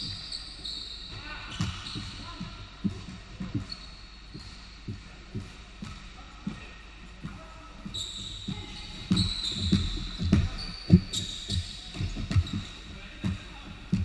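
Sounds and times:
sneaker squeaks: 0.0 - 14.0
basketball bouncing on hardwood: 8.5 - 14.0.

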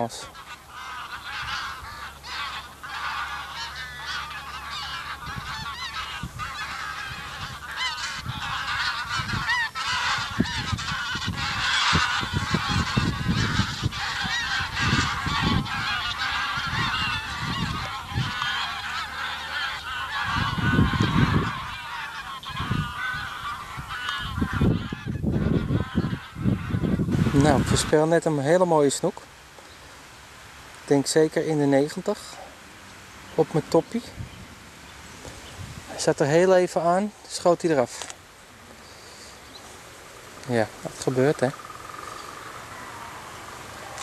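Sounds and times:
geese honking: 0.0 - 30.0, 30.8 - 44.0
wind rumbling on microphone: 1.2 - 28.0, 33.9 - 36.1.

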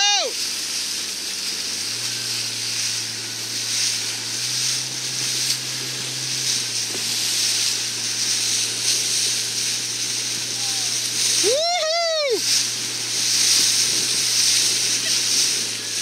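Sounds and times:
water rushing past boat hulls: 0.0 - 16.0
low hum: 0.6 - 16.0.

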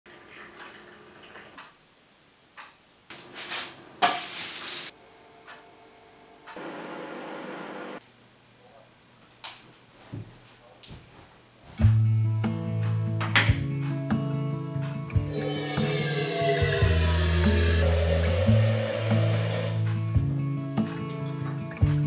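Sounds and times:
dense hiss: 16.6 - 19.9.

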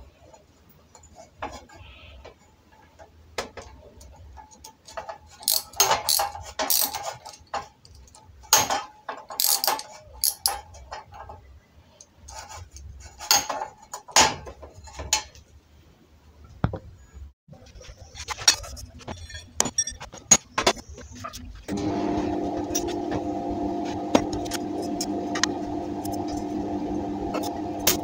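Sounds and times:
metal clicks taps and scrapes: 0.3 - 8.6, 9.2 - 11.4.

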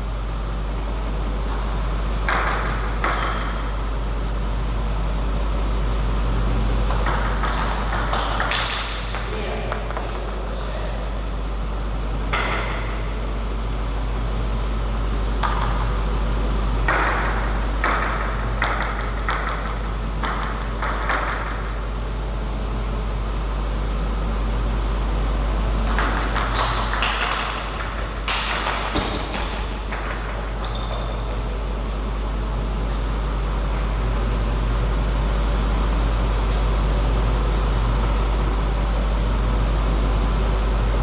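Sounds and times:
low hum: 0.0 - 41.0
table tennis ball clicking: 6.9 - 10.1, 15.4 - 16.1, 25.8 - 31.3.

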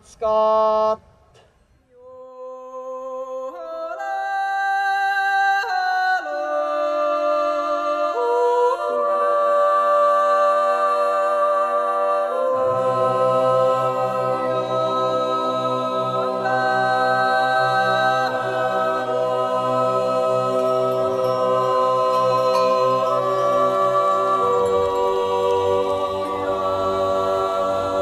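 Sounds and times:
low voice singing: 1.9 - 28.0
a cappella group singing: 2.0 - 28.0.

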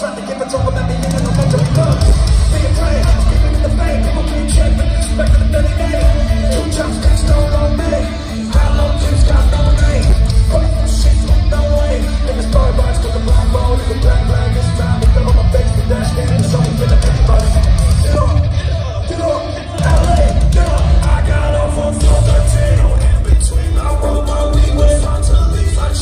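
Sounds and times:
distorted electric guitars: 0.0 - 26.0
live rock band playing: 0.0 - 26.0
pounding drums: 0.8 - 18.5, 19.7 - 26.0.

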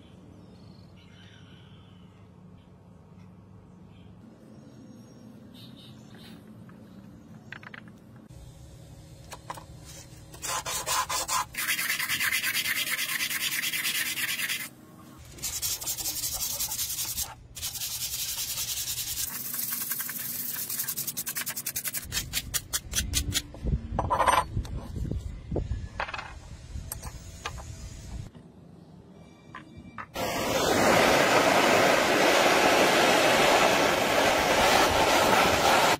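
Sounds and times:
sandpaper rasping on metal: 10.4 - 14.7, 15.3 - 22.5.

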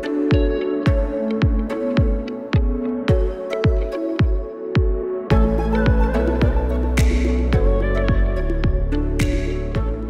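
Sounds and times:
electronic music: 0.0 - 10.0
deep kick drum: 0.3 - 10.0
bass line: 5.3 - 10.0.

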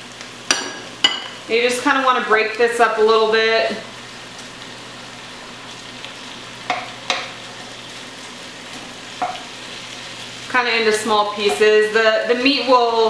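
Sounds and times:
meat sizzling in a pot: 0.0 - 13.0
spatula knocking against pot: 6.7 - 7.3.

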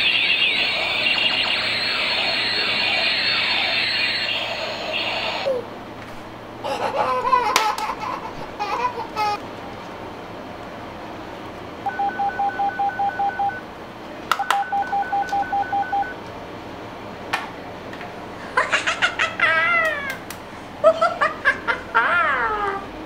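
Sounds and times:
falling warbling toy tones: 0.0 - 5.5
rapid electronic beeps: 0.0 - 5.5.

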